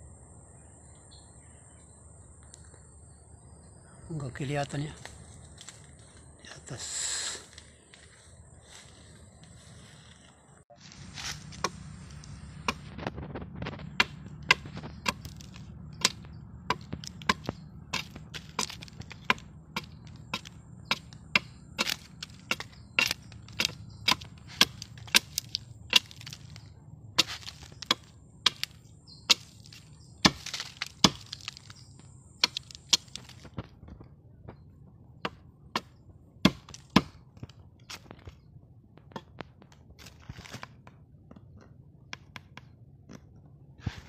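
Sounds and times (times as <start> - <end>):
machete chopping tree trunk: 11.1 - 33.7, 35.2 - 38.4, 39.0 - 41.0.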